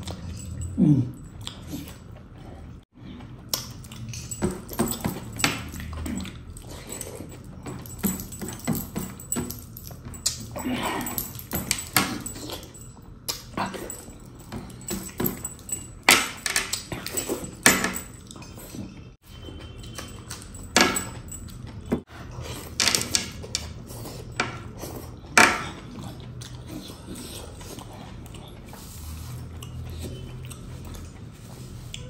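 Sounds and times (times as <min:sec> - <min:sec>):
metal rings and chains clinking: 0:00.0 - 0:01.4, 0:03.6 - 0:26.3
wet chewing and lip-smacking: 0:00.0 - 0:04.7, 0:23.7 - 0:32.0.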